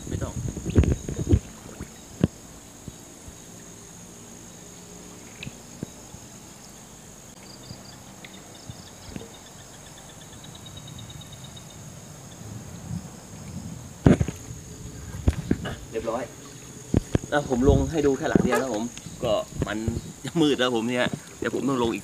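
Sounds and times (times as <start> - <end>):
crickets trilling: 0.0 - 22.0
rapid pulsed insect chirps: 0.0 - 22.0.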